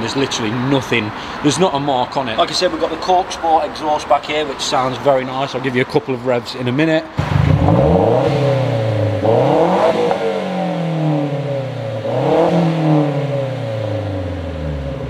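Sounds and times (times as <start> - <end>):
car engine revving: 7.2 - 15.0.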